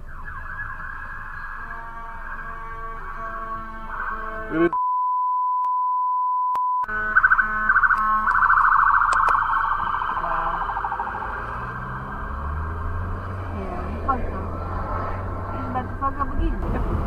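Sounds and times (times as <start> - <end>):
warbling electronic alarm tones: 0.0 - 4.8, 6.8 - 13.4
steady single-pitch beep: 4.8 - 6.9
layered electronic tones: 6.8 - 14.4.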